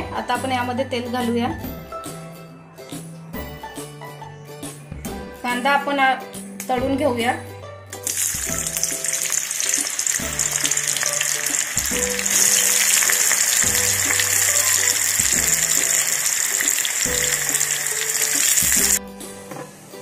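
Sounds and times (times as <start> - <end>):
onions sizzling in hot oil: 8.0 - 19.0.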